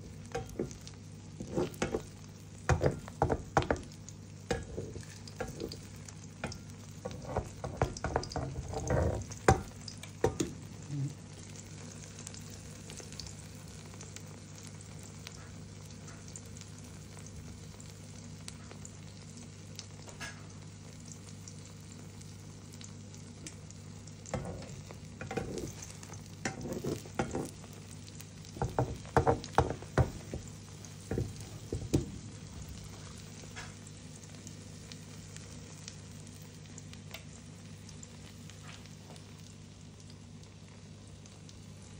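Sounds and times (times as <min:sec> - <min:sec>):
omelette frying in a pan: 0:00.0 - 0:41.9
metal spatula scraping a pan: 0:01.4 - 0:02.1, 0:07.0 - 0:09.4, 0:24.4 - 0:27.6.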